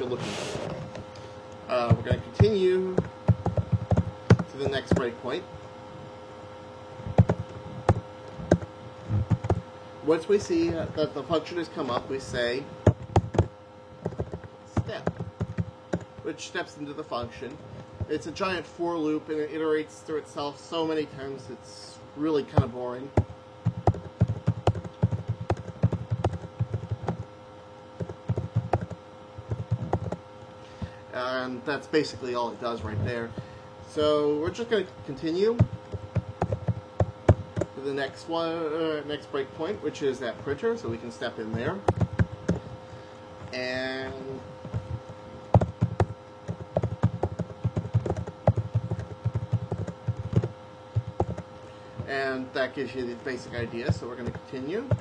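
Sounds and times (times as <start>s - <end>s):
computer keyboard typing: 1.7s - 5.2s, 7.2s - 9.6s, 12.3s - 16.1s, 22.5s - 27.3s, 28.0s - 30.2s, 35.6s - 37.8s, 41.5s - 42.7s, 44.1s - 51.5s, 53.5s - 55.0s.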